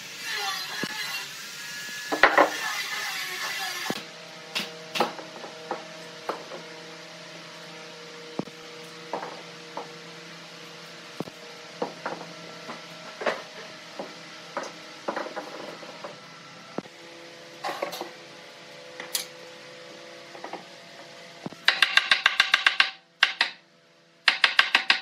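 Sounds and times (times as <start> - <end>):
wooden blocks knocking: 21.7 - 23.6.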